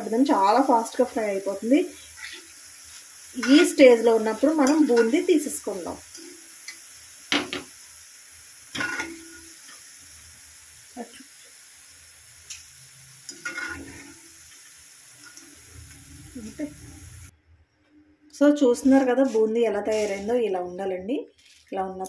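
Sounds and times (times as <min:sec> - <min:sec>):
food sizzling in hot oil: 0:00.0 - 0:17.3, 0:18.8 - 0:22.0
metal ladle scraping pan: 0:03.4 - 0:04.0, 0:08.7 - 0:09.5, 0:13.3 - 0:14.2, 0:19.3 - 0:20.4.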